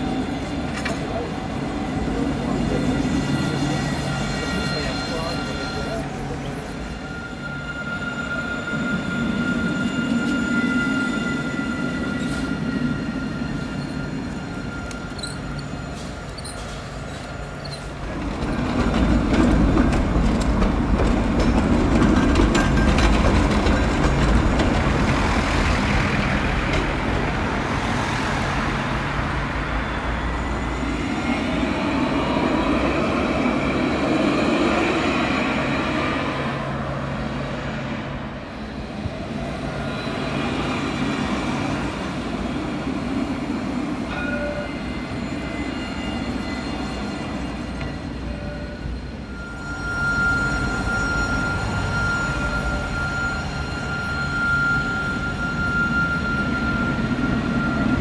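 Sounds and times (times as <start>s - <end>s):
tram wheels rumbling on rails: 0.0s - 58.0s.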